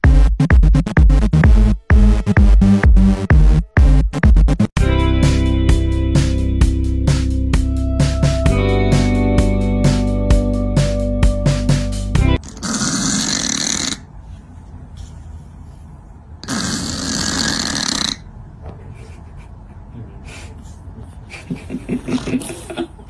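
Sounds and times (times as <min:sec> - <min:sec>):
cat snoring: 0:12.5 - 0:14.0, 0:16.4 - 0:18.2.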